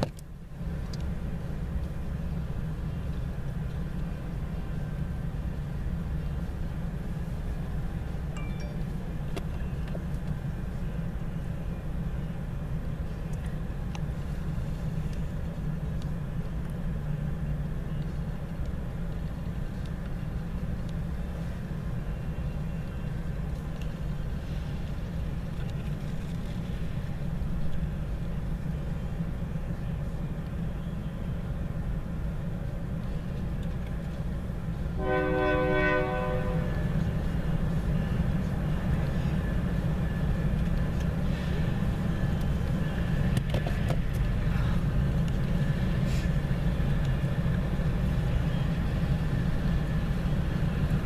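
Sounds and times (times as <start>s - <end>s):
diesel locomotive rumble: 0.0s - 51.0s
train horn: 35.0s - 37.0s.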